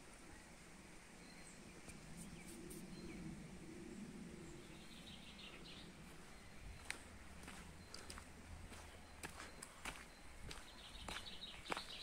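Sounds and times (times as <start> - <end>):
footsteps on dry leaves: 6.0 - 12.0.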